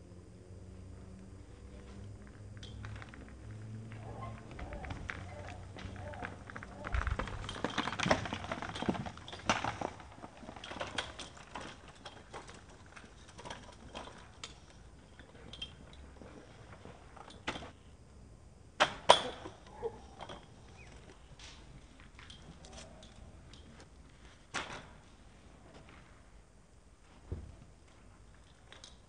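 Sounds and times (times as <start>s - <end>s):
bike rolling over dirt: 1.1s - 17.8s
scooter wheels knocking: 3.9s - 14.6s.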